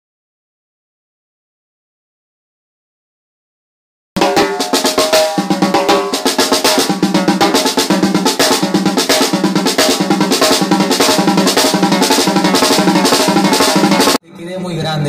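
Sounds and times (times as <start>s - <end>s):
drum track with snare rolls: 4.2s - 14.2s.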